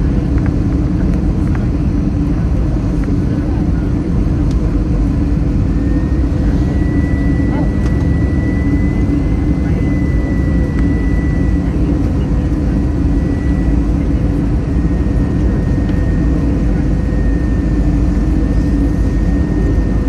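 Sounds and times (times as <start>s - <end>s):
jet engines and airflow rush: 0.0s - 20.0s.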